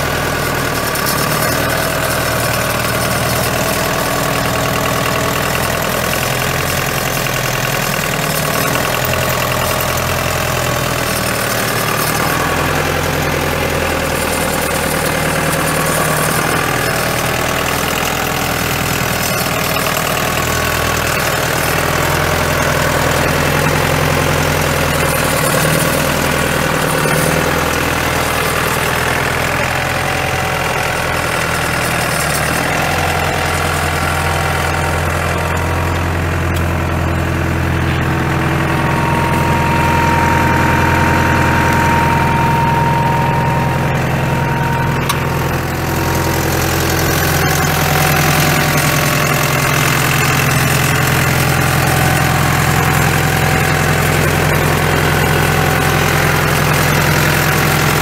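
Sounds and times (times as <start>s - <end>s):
tractor diesel engine idling: 0.0s - 58.0s
thin whine: 37.9s - 50.0s.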